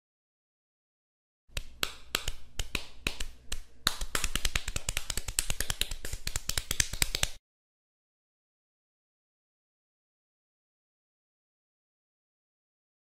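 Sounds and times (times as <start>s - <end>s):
cartoon paw taps: 1.5s - 7.4s.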